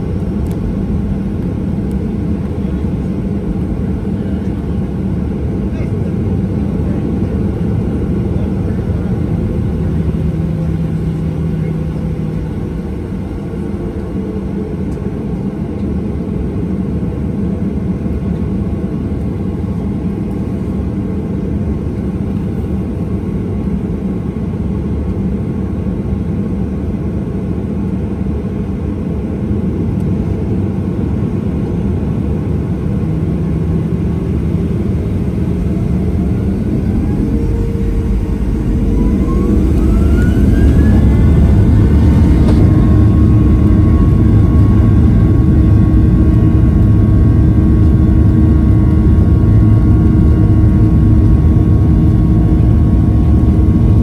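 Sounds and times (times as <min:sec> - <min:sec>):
jet engines rumbling: 0:00.0 - 0:54.0
engine whine rising: 0:32.4 - 0:54.0.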